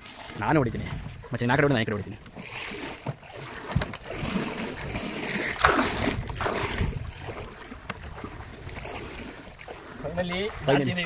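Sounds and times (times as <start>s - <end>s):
water lapping: 0.0s - 11.0s
hands splashing through water: 2.4s - 9.7s.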